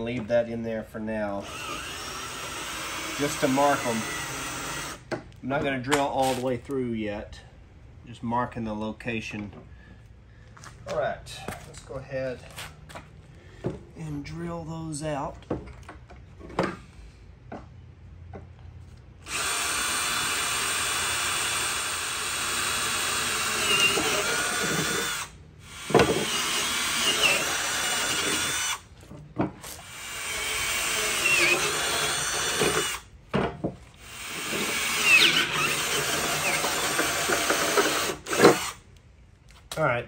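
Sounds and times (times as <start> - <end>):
cordless drill boring metal: 1.4 - 5.0, 19.2 - 28.8, 29.8 - 33.1, 34.0 - 38.8
drill bit knocks and squeals: 23.2 - 28.8, 30.1 - 33.0, 34.2 - 38.7.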